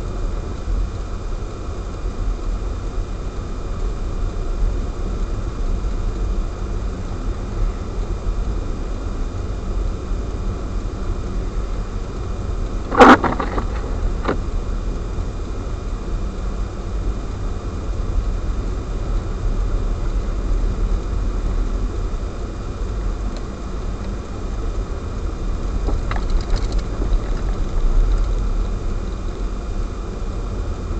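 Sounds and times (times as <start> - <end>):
car driving on snowy road: 12.7 - 14.5, 25.2 - 29.6.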